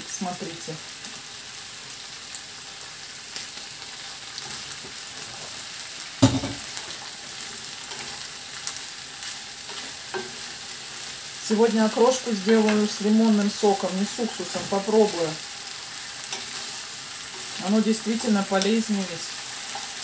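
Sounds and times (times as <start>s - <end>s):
food sizzling in a pan: 0.0s - 20.0s
loud knock: 6.2s - 6.6s.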